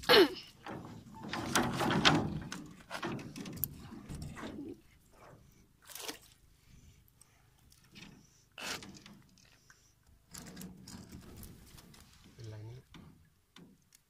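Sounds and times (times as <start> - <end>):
water splashing: 5.8 - 6.4.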